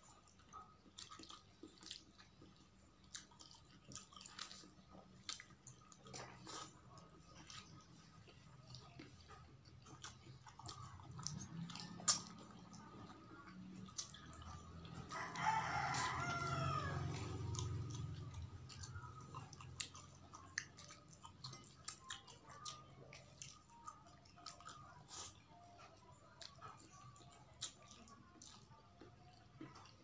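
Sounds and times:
mouth smacking and chewing: 0.0s - 30.0s
rooster crowing: 15.0s - 17.5s.

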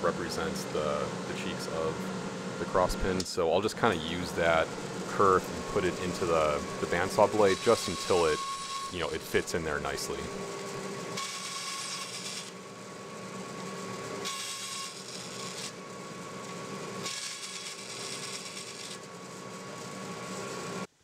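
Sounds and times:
bandsaw humming: 0.0s - 20.9s.

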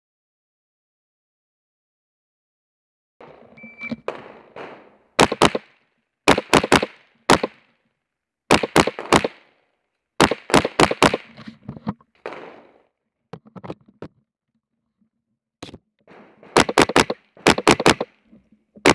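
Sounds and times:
rifle gunfire with echo: 3.2s - 7.7s, 8.5s - 9.6s, 10.2s - 11.3s, 12.2s - 12.9s, 16.1s - 18.2s.

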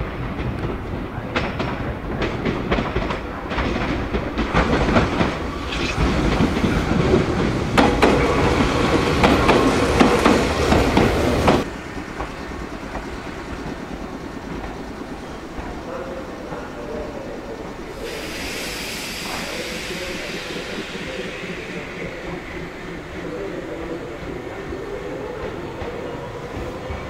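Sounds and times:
train wheels clacking over rail joints: 0.0s - 16.6s.

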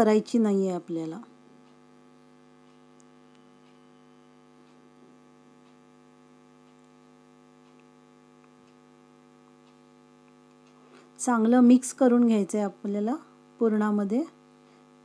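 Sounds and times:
faint ticks: 1.6s - 2.0s, 2.6s - 11.1s.

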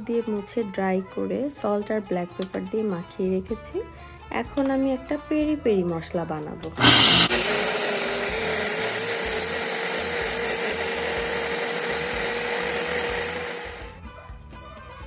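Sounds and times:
blender motor whine: 6.8s - 14.0s.

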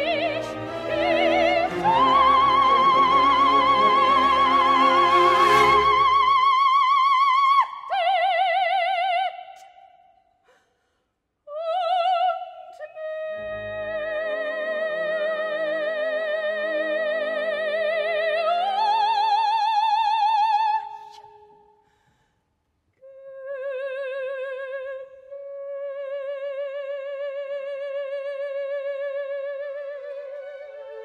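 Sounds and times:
soft orchestral accompaniment: 0.0s - 7.1s
operatic soprano singing: 0.0s - 9.9s, 11.5s - 21.6s, 23.0s - 31.0s.

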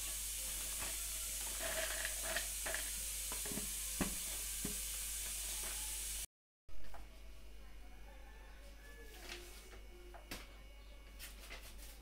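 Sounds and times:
steady hiss: 0.0s - 6.3s.

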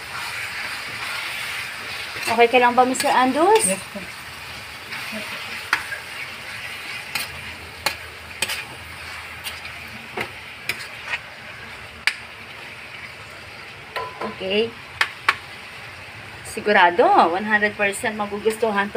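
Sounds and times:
spatula scraping a pan: 0.0s - 4.1s, 4.8s - 11.8s
chicken sizzling in a pan: 0.0s - 18.9s.

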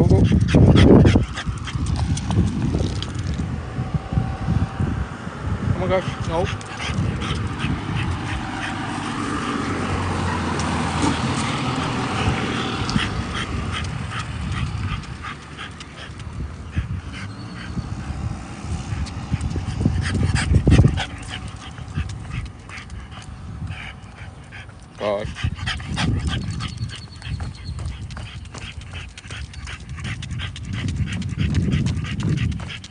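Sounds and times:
dog making small sounds: 6.0s - 17.8s.

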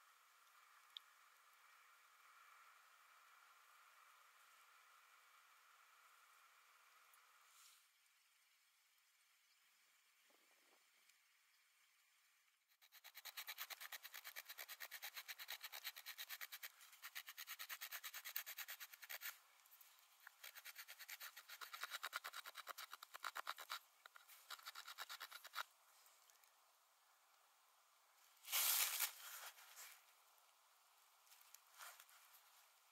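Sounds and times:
branch being scraped by hand: 12.8s - 25.7s, 28.4s - 30.1s, 31.4s - 32.5s.

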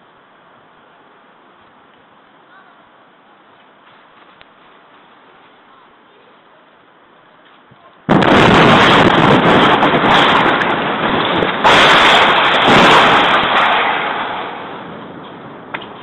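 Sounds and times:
structure collapsing with crashing roar: 7.6s - 16.0s.

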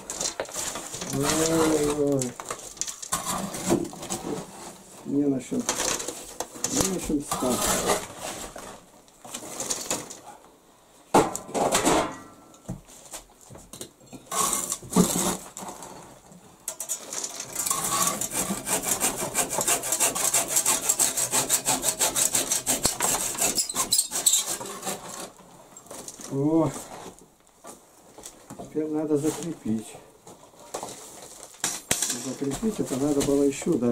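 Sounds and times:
scrapes and knocks on wood: 0.0s - 10.4s, 12.7s - 16.2s, 16.8s - 29.6s, 30.3s - 33.9s
hand saw sawing wood: 0.9s - 2.3s, 6.7s - 8.3s, 17.6s - 25.4s.

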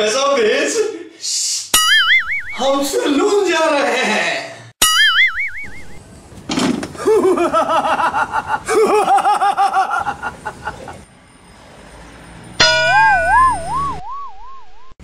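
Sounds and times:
cartoon boing sound effect: 1.8s - 2.6s, 4.8s - 6.0s, 12.6s - 14.3s
man laughing loudly: 7.0s - 11.0s.

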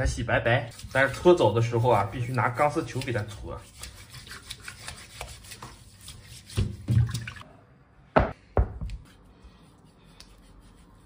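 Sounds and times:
steel wool scrubbing: 0.7s - 7.2s
water splashing: 6.6s - 7.4s.

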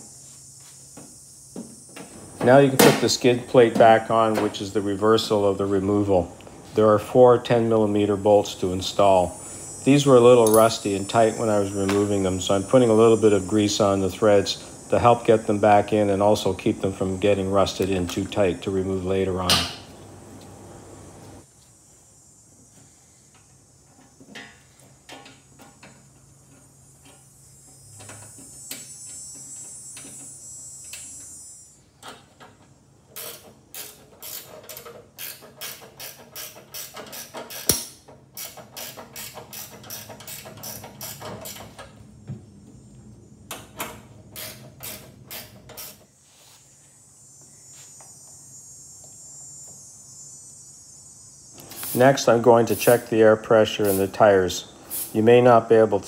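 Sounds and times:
faint hiss: 0.0s - 37.8s, 43.5s - 56.0s
ratchet wrench clicking: 33.2s - 41.8s, 44.4s - 46.0s.

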